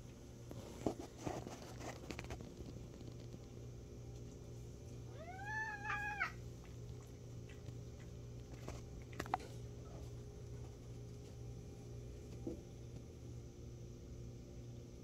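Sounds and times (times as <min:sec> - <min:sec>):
cat meowing: 0:05.1 - 0:06.4.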